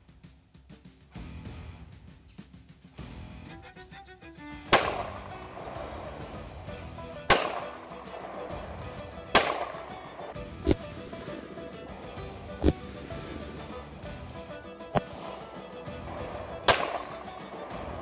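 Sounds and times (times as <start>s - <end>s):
quiet background music: 3.4s - 18.0s
gunshots with echo: 4.7s - 13.8s, 15.0s - 18.0s.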